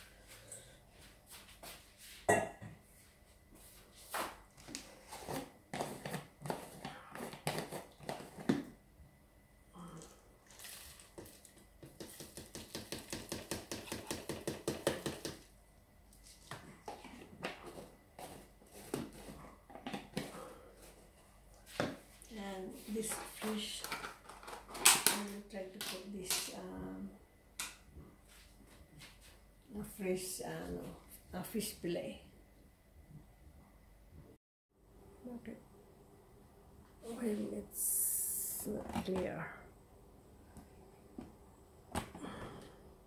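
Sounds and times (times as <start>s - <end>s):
kitchen things knocking and clattering: 11.8s - 15.4s.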